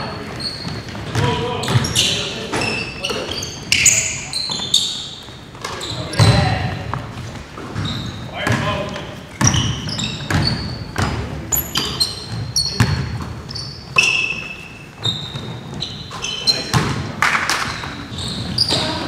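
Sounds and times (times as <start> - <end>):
sneakers squeaking: 0.0 - 19.0
basketball bouncing on hardwood: 0.6 - 1.9, 6.2 - 13.3.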